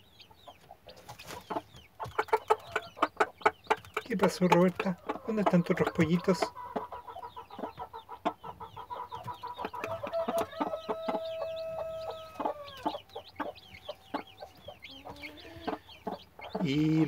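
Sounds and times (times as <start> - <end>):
chicks peeping: 0.0 - 17.0
hen clucking: 0.0 - 17.0
hen pecking taps: 0.6 - 16.9.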